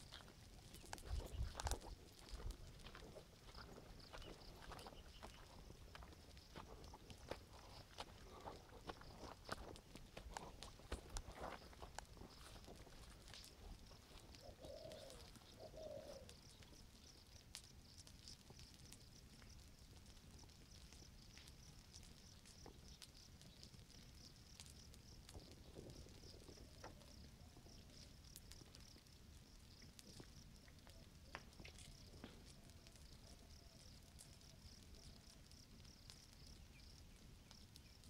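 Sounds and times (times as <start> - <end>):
snaps and ticks: 0.0 - 29.1
faint crackle of ground fire: 0.0 - 38.0
low cooing bird calls: 13.8 - 17.1.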